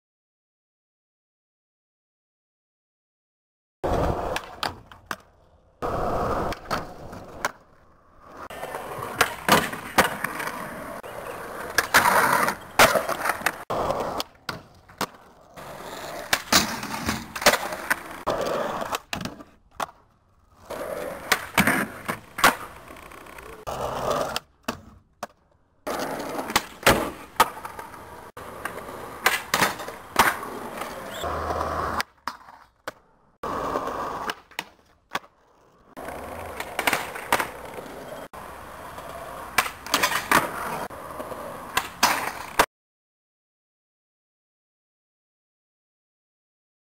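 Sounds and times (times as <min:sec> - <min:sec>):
skateboard clacks: 0:03.8 - 0:07.7, 0:08.5 - 0:35.4, 0:36.0 - 0:42.7
skateboard wheels rolling on concrete: 0:03.8 - 0:42.7.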